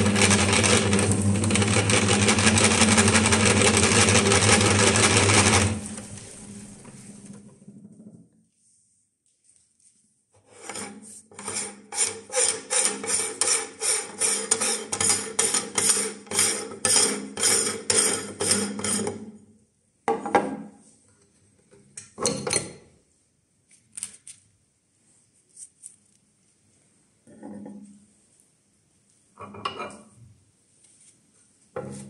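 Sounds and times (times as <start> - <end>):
metal threads grating: 10.5 - 19.1.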